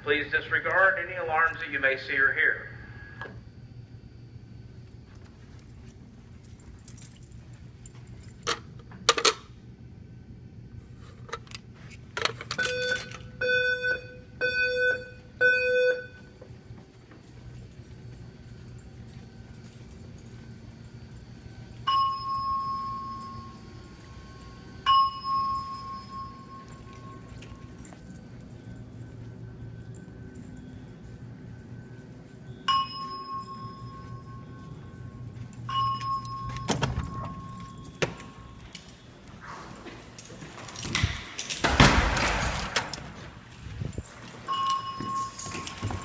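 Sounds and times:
alarm speaker chime dings: 12.6 - 16.3, 21.8 - 27.7, 32.5 - 38.6, 44.4 - 46.0.

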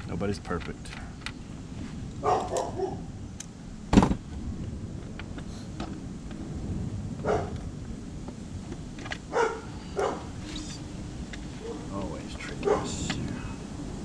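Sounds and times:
dog barking: 2.2 - 3.0, 7.2 - 7.6, 9.3 - 10.3, 12.6 - 13.0
sharp knock: 3.9 - 4.2.

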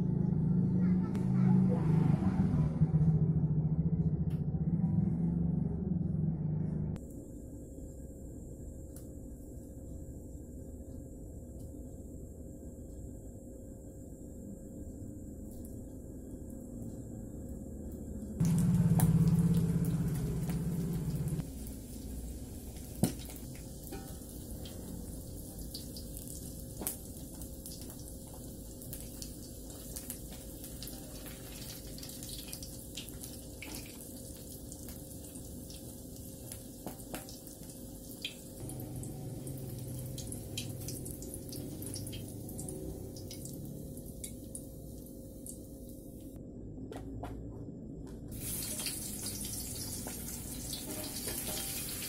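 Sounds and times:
low hum: 0.0 - 25.7, 38.5 - 48.3
fish sizzling in hot oil: 18.4 - 44.6, 48.3 - 52.0.

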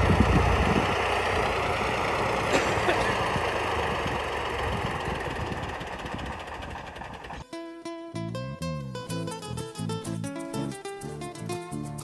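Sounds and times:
tractor engine running: 0.0 - 7.4.

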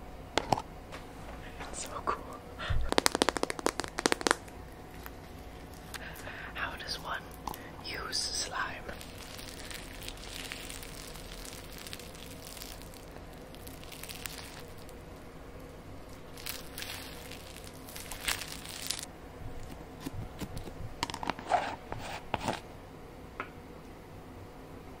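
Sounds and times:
slime crackling and stretching: 2.8 - 6.2, 8.9 - 22.5.

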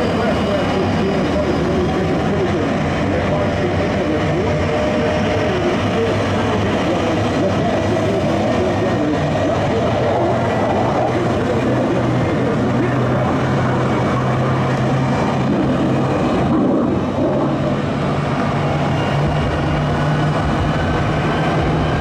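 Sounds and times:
jet engine running: 0.0 - 22.0.

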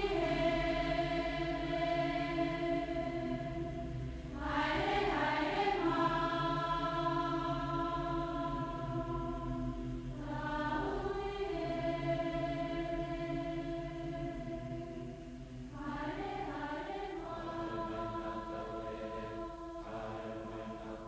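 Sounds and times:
choir holding long chords: 0.0 - 21.0.

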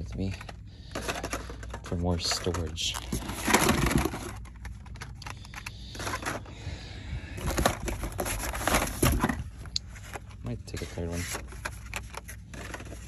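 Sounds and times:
cardboard and plastic packaging rustling: 0.0 - 13.0.

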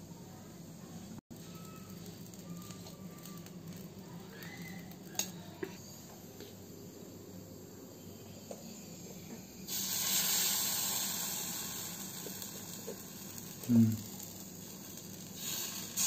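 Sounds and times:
batter sizzling on hot pan: 1.3 - 5.8, 8.7 - 16.0.

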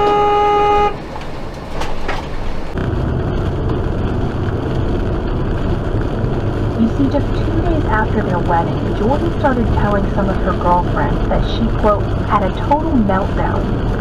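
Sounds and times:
car horn blast: 0.0 - 1.0
road and engine noise inside car: 0.0 - 14.0.

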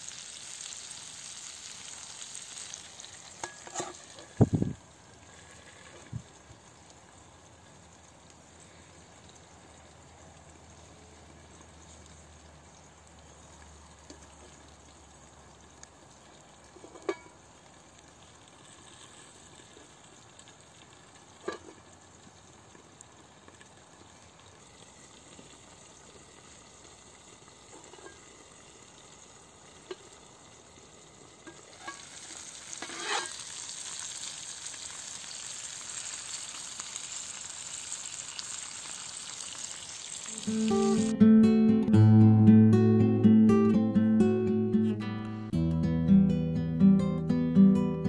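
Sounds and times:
potatoes sizzling in a pan: 0.0 - 41.2.

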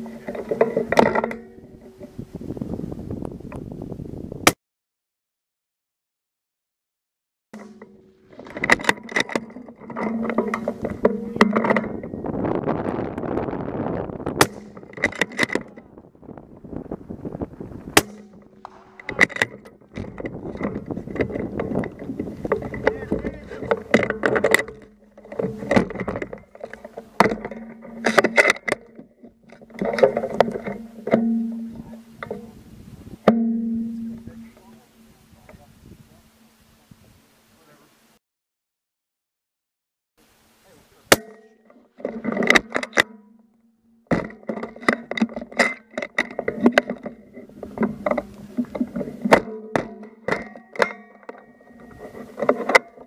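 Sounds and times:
knocks and clatters: 7.6 - 12.2, 14.4 - 15.9, 17.9 - 32.6, 44.0 - 53.0
humming mix of tones: 7.6 - 37.6.

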